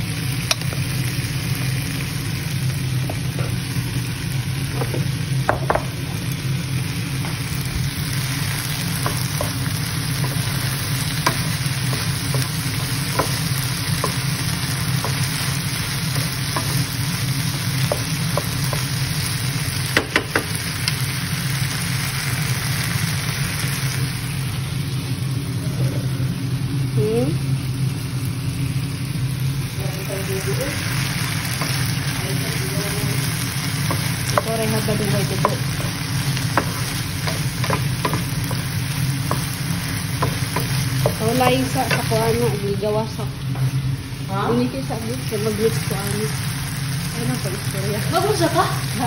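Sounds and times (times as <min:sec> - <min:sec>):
food sizzling in frying pan: 0:00.0 - 0:49.0
wooden spatula knocking pan: 0:04.7 - 0:06.0, 0:09.0 - 0:17.1, 0:17.8 - 0:19.0, 0:19.9 - 0:20.6, 0:33.1 - 0:42.4.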